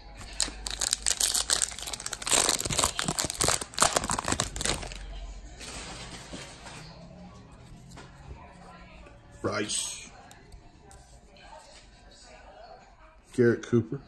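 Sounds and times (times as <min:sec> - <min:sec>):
wrapper crinkling and tearing: 0:00.1 - 0:05.0.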